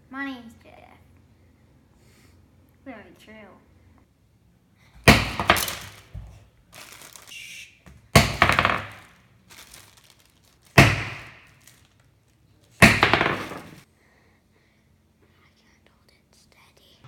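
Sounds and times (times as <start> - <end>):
bag slammed on wooden board: 5.0 - 6.4, 8.1 - 9.8, 10.7 - 11.7, 12.8 - 13.8
plastic bag rustling: 5.2 - 7.6, 8.2 - 13.8.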